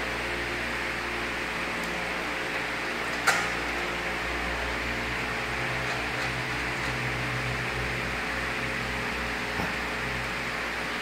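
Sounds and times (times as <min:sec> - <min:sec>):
low electric motor hum: 0:00.0 - 0:11.0
milling machine whirring: 0:01.5 - 0:10.3.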